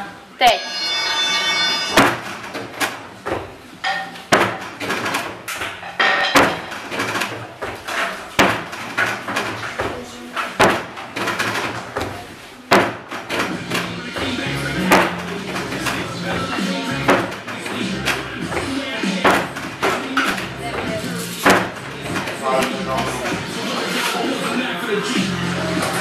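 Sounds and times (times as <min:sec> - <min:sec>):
feet landing on wooden box: 0:02.0 - 0:03.6, 0:04.3 - 0:10.0, 0:10.6 - 0:22.4
feet thumping on floor mat: 0:03.0 - 0:03.7, 0:11.8 - 0:22.4.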